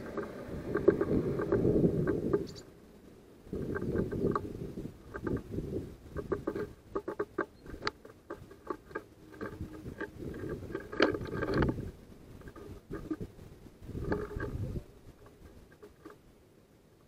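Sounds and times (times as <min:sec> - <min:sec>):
birds pecking on wooden feeder: 0:00.0 - 0:02.7, 0:03.5 - 0:16.3.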